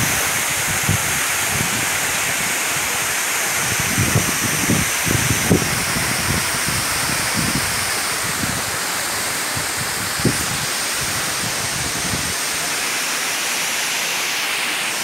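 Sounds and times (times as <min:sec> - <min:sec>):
wind buffeting microphone: 0:00.0 - 0:02.5, 0:03.6 - 0:12.4
waterfall pouring onto rock: 0:00.0 - 0:15.0.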